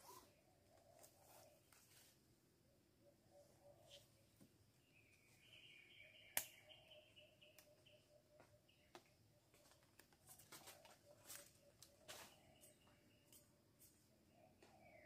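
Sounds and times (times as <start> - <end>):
bird twittering: 4.9 - 9.0.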